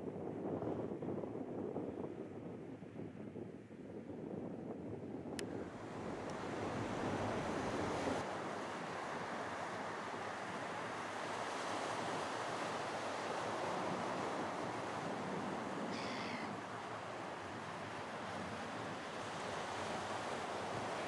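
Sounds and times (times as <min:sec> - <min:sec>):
small waves breaking on beach: 0:05.5 - 0:21.0.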